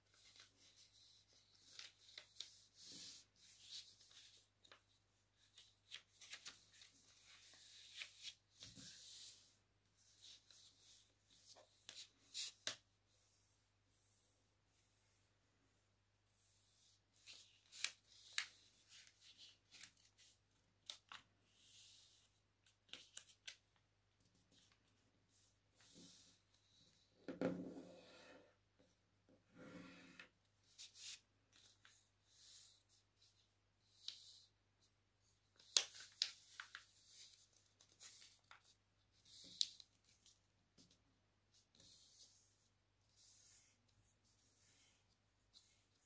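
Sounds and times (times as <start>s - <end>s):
paper rustling: 0.0s - 9.5s, 35.5s - 42.3s.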